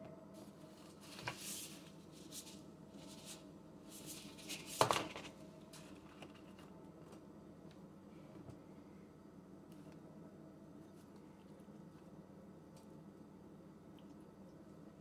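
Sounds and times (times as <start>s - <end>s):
dry papery rustling: 0.6s - 6.6s.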